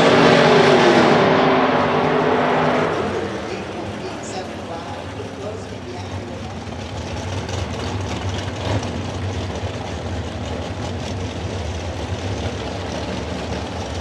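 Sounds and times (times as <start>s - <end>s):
engines idling with deep rumble: 2.9s - 14.0s.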